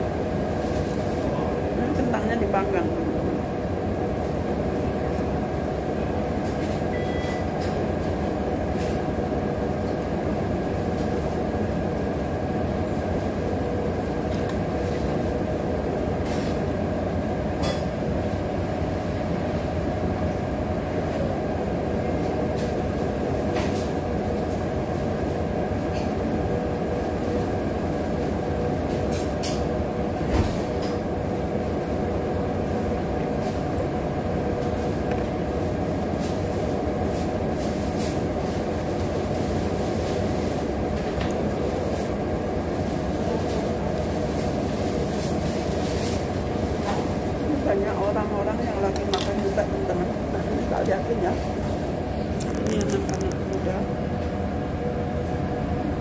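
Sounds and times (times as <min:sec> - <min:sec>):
low mechanical drone: 0:46.3 - 0:56.0.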